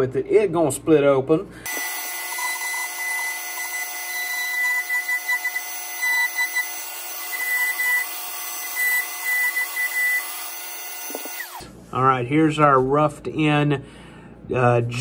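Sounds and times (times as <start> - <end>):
rotary tool grinding bone: 1.7 - 11.6.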